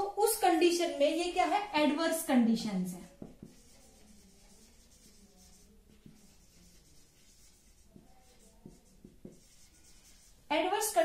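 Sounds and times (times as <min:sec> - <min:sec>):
marker scratching on whiteboard: 0:03.0 - 0:11.0.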